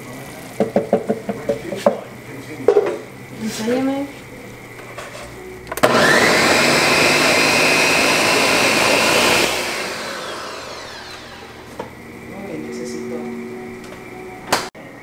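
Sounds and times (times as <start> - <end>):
blender motor whining: 5.7 - 11.9.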